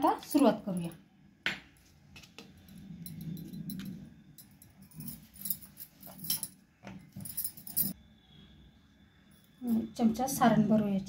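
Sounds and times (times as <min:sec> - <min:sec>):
bangles jingling: 0:02.6 - 0:08.0.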